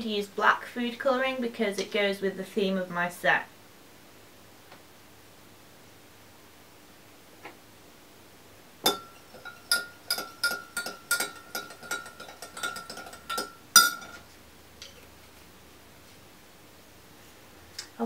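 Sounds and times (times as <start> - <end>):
spoon clinking against glass jug: 8.9 - 14.2.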